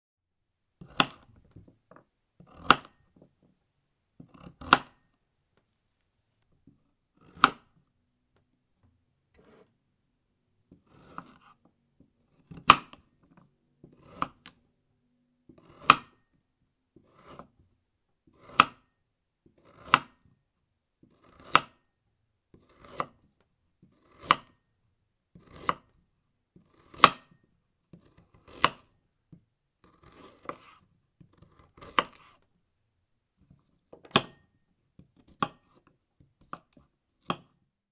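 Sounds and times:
knife chopping on cutting board: 0.8 - 1.6, 2.4 - 3.0, 4.2 - 5.0, 7.2 - 7.8, 10.7 - 11.6, 12.4 - 13.1, 13.9 - 14.6, 15.5 - 16.3, 17.0 - 17.5, 18.3 - 18.9, 19.5 - 20.2, 21.1 - 21.8, 22.6 - 23.2, 23.9 - 24.6, 25.4 - 25.9, 26.6 - 27.4, 28.0 - 28.9, 29.8 - 32.4, 34.0 - 34.4, 35.2 - 35.8, 36.4 - 37.6.

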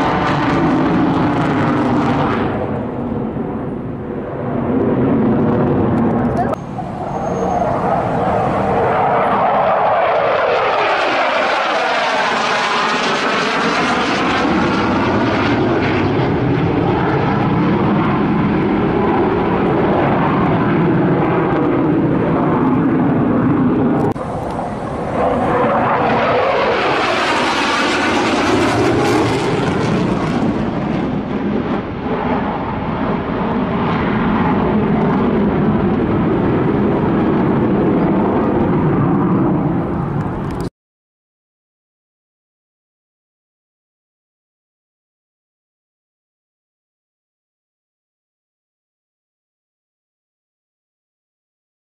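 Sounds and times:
fighter jet passing overhead: 0.0 - 40.7.

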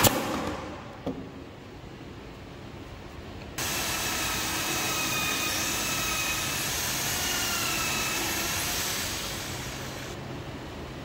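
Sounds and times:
electric drill boring into wood: 3.6 - 10.2.

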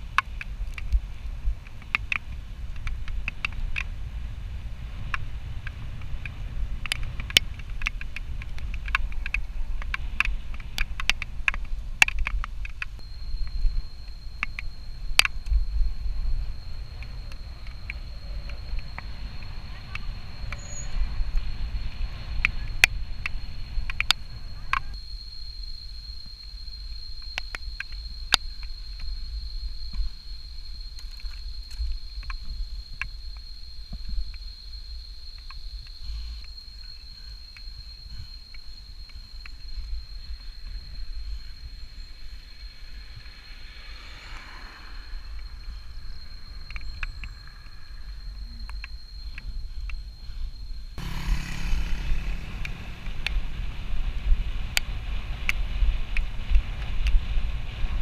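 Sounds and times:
bike clicks and rattles: 0.0 - 25.0
wind buffeting microphone: 0.0 - 25.0, 37.8 - 58.0
road rumble: 0.0 - 58.0
thin high tone: 13.0 - 21.3
thin steady high tone: 13.0 - 51.0
vehicle passing: 43.2 - 46.4, 51.0 - 55.4.

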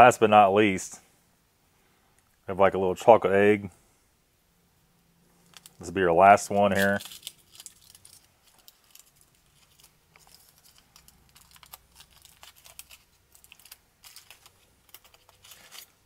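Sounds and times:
foil wrapper crinkling: 5.4 - 16.0.

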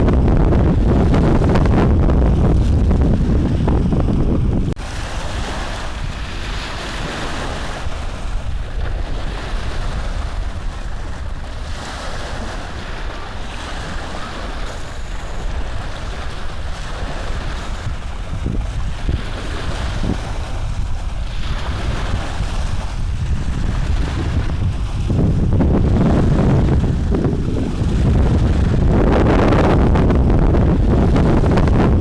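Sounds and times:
rushing noise with low rumble: 0.0 - 6.9, 17.7 - 32.0.

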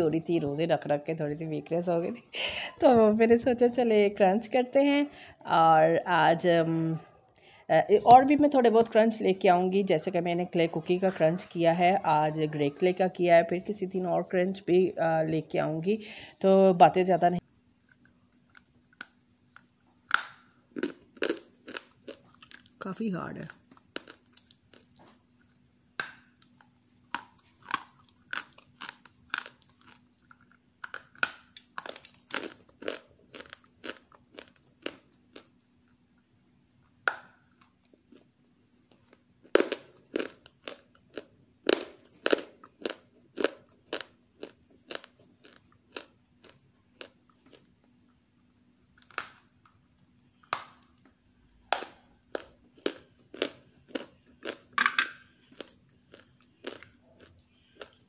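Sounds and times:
hard clay cracking and snapping: 18.5 - 20.5, 26.0 - 35.0, 49.0 - 49.4, 50.4 - 50.8.

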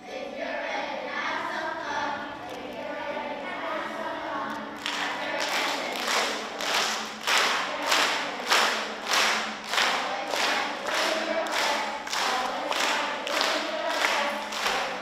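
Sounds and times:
children singing: 0.0 - 15.0
children clapping in rhythm: 4.5 - 15.0.

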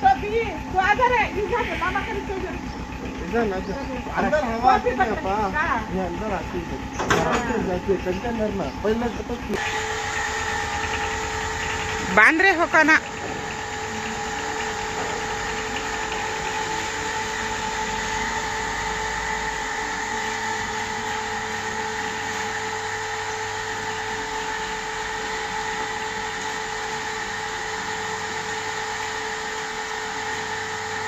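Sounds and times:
high steady drone: 0.0 - 6.9, 7.6 - 29.5
truck engine rumbling: 0.0 - 28.6.

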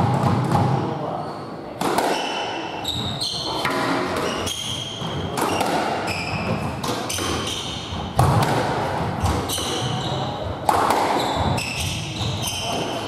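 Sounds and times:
squash ball cracking off rackets: 1.8 - 2.6, 3.6 - 10.0, 10.6 - 13.0
shoes squeaking on wooden floor: 2.8 - 8.2, 9.1 - 13.0.

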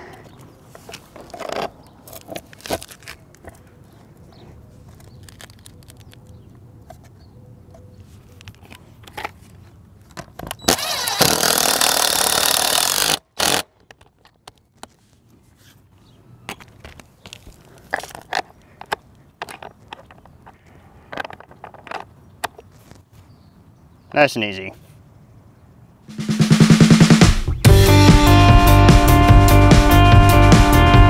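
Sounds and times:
cordless drill driving a bolt: 10.6 - 13.6.

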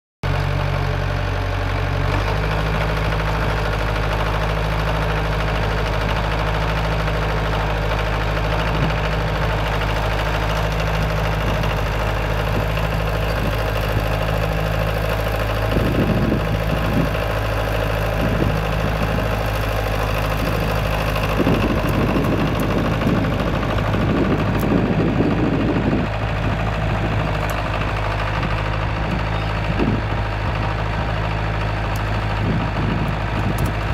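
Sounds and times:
tractor engine running: 0.2 - 33.9
branches crackling and snapping: 18.8 - 23.9.

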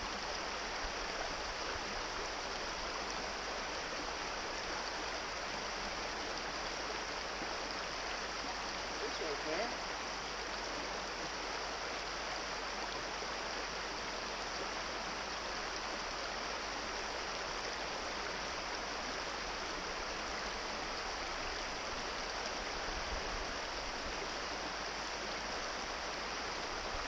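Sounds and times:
brook running over stones: 0.0 - 27.0.

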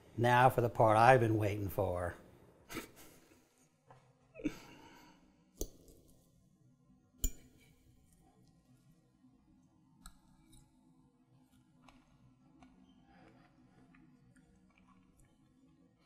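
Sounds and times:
fork clinking on china plate: 7.2 - 7.7.

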